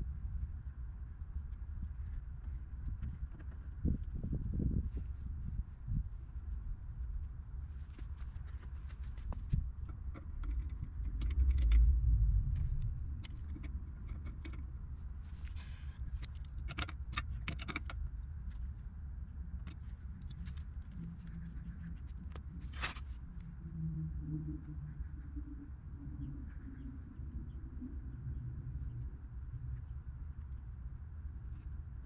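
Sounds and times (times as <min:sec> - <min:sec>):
low rumble: 0:00.0 - 0:16.6.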